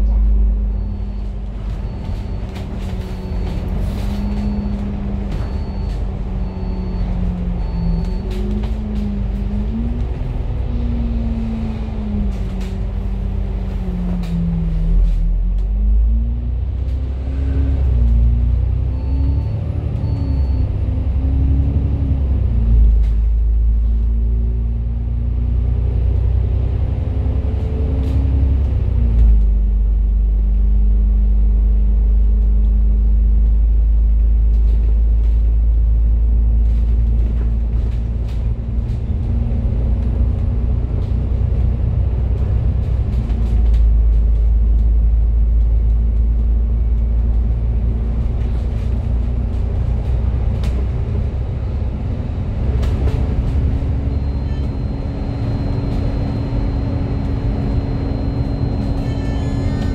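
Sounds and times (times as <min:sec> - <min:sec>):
bus diesel engine: 0:00.0 - 0:59.9
road rumble: 0:00.0 - 0:59.9.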